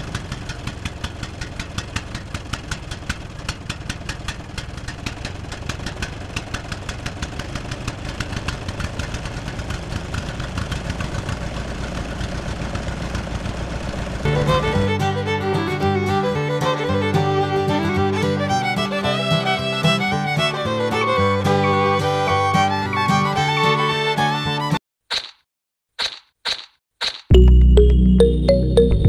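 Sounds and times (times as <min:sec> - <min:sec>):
tractor engine idling: 0:00.0 - 0:23.2.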